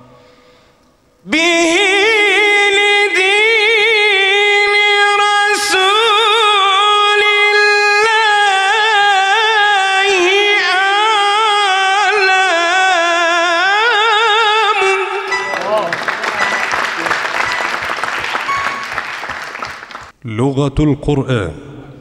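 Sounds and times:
person singing religious chant: 0:01.2 - 0:17.5.

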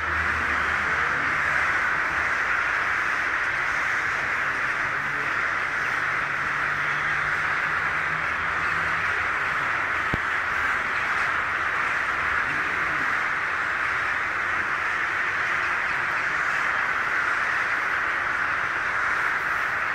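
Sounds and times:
crows cawing: 0:00.0 - 0:19.9.

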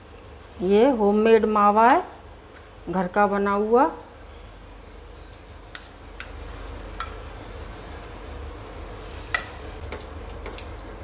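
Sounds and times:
syrup bubbling in a pan: 0:04.7 - 0:11.0.

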